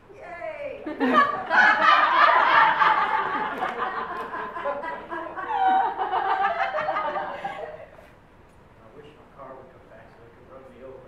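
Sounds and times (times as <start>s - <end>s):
audience laughing: 0.9s - 8.0s.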